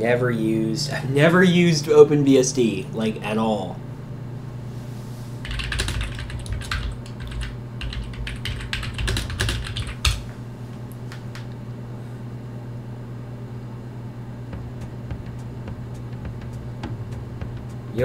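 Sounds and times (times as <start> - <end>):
steady low hum: 0.0 - 18.0
typing on keyboard: 5.4 - 10.2.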